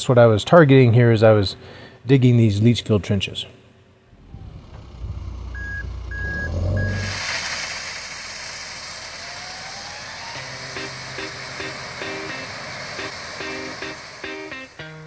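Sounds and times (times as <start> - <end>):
diesel engine running: 4.1 - 14.7
faint rising whine: 4.1 - 15.0
gravel pouring: 5.3 - 14.8
reversing alarm beeps: 5.5 - 7.2
background music: 10.4 - 15.0.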